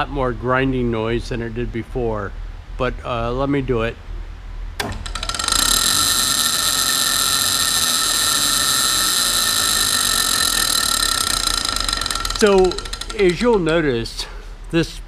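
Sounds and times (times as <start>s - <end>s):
drill press motor whining: 4.8s - 14.0s.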